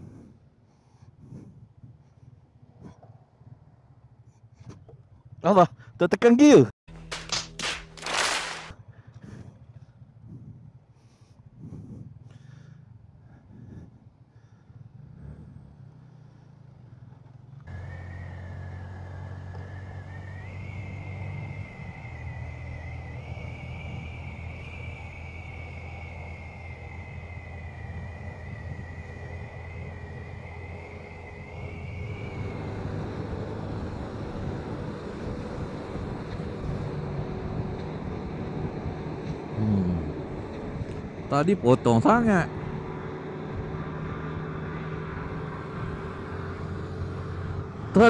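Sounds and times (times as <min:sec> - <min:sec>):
motorcycle engine and tyres droning: 0:00.0 - 0:48.0
thin high whine: 0:17.7 - 0:44.1.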